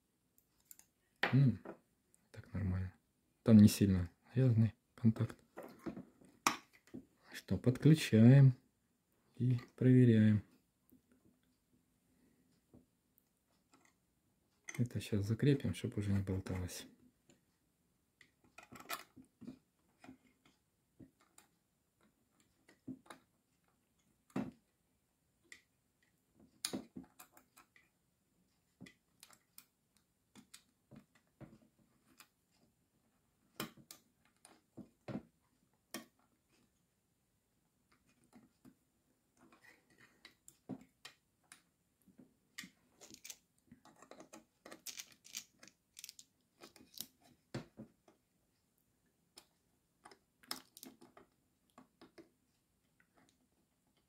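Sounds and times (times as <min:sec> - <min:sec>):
small parts clicking and scraping: 0:00.4 - 0:01.0, 0:18.2 - 0:24.3, 0:28.7 - 0:31.4, 0:42.5 - 0:48.2, 0:49.4 - 0:52.3.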